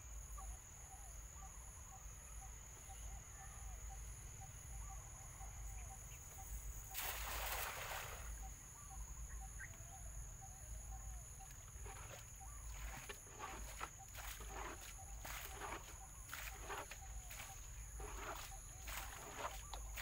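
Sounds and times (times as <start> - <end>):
high insect whine: 0.0 - 20.0
insects chirping: 0.0 - 20.0
cast net splashing on water: 6.9 - 8.4
splashes and knocks of net: 6.9 - 8.4.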